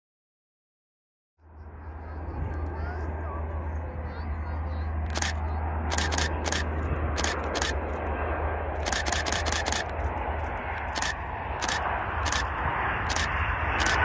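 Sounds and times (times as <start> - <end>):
steady low rumble: 1.4 - 14.0
camera shutter clicking: 5.1 - 8.0, 8.8 - 10.1, 10.7 - 14.0.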